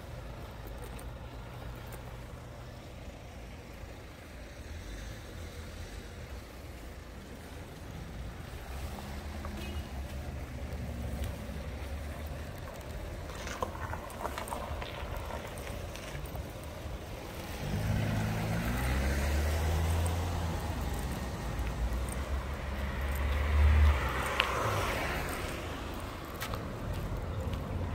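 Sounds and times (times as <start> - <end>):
light clicks and rustles: 10.2 - 16.9.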